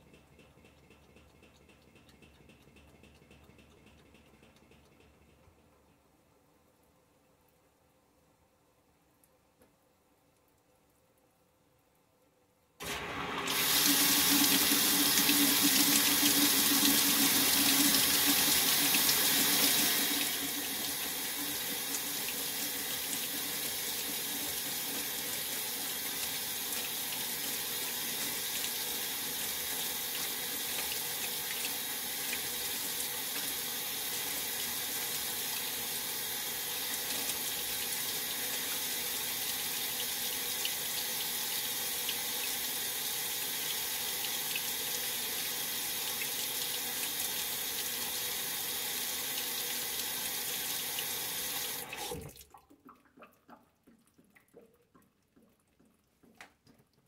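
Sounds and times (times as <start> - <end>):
water rushing into washer tub: 12.8 - 56.4.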